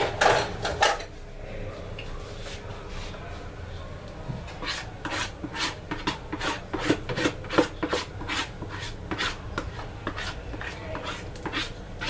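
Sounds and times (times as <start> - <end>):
utensil scraping a container: 4.5 - 11.8.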